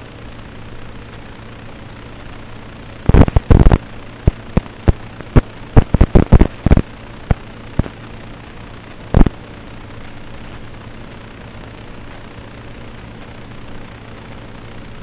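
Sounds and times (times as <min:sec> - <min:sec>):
steady hum and hiss: 0:00.0 - 0:15.0
loud crackling pops: 0:03.0 - 0:08.0, 0:09.0 - 0:09.4.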